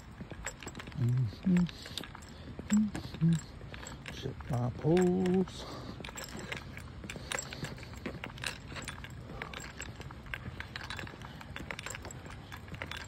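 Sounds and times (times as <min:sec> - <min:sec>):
footsteps on asphalt: 0:00.0 - 0:13.0
light clicks and rattles: 0:00.0 - 0:13.0
low rumble of movement: 0:00.0 - 0:13.0.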